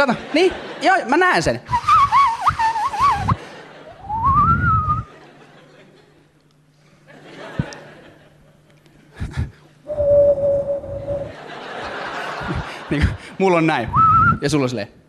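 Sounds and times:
audience laughter: 0.0s - 1.1s, 2.6s - 9.8s, 10.8s - 13.6s
person whistling rising note: 1.7s - 3.4s, 4.0s - 5.1s, 9.9s - 11.4s
faint low hum: 1.7s - 15.0s
crowd noise: 9.9s - 13.3s.

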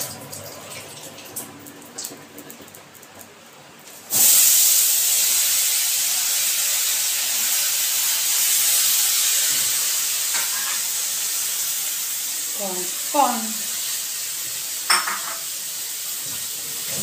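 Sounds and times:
vegetables sizzling in hot oil: 3.9s - 17.0s.

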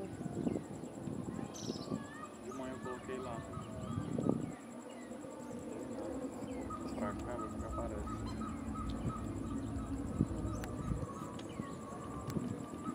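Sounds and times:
bird chirps: 0.1s - 5.2s, 6.3s - 12.9s
steady low rumble: 5.6s - 12.9s
high pulsed call: 6.2s - 12.9s.

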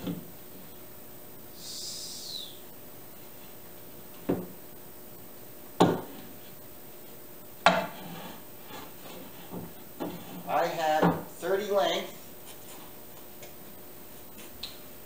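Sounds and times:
boards knocking on workbench: 4.2s - 4.5s, 5.8s - 6.2s, 7.6s - 8.0s, 9.5s - 11.3s
wooden boards scraping: 7.7s - 10.6s.

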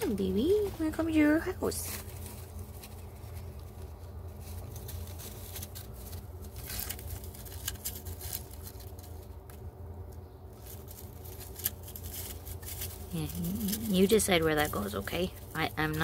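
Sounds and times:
dry grass rustling: 0.0s - 16.0s.

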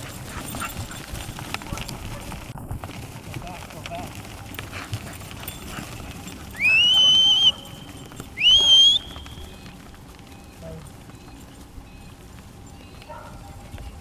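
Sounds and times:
cattle hooves shuffling on grass: 0.0s - 14.0s
rising whistle commands: 6.5s - 9.8s.

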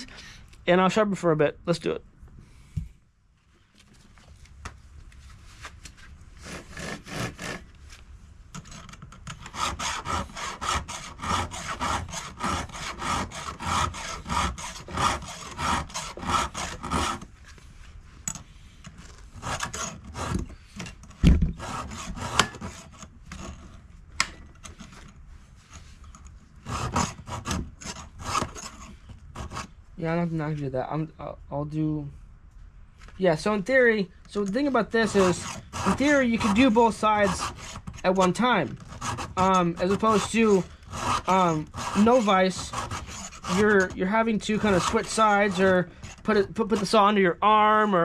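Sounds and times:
file scraping chainsaw chain: 6.4s - 7.6s, 8.6s - 17.3s, 19.4s - 21.0s, 21.6s - 23.8s, 26.6s - 29.8s, 34.3s - 47.0s.

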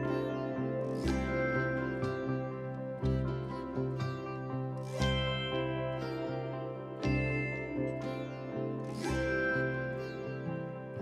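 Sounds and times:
plucked-string background music: 0.0s - 11.0s.

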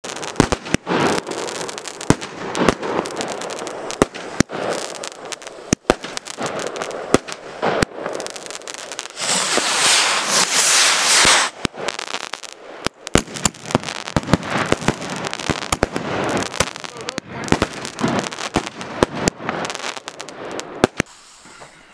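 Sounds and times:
fireworks popping and banging: 0.0s - 21.8s.

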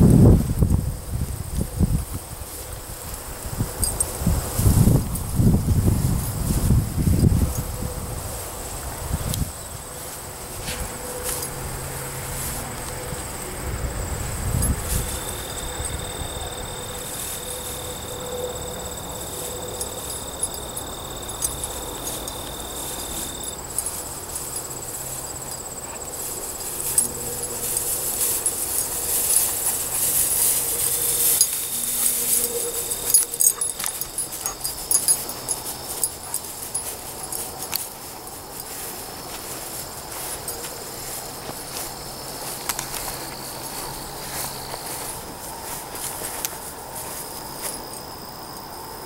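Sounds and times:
dry grass rustling and crackling: 0.0s - 48.2s
insects trilling: 1.0s - 49.0s
dog sniffing: 25.4s - 37.6s.

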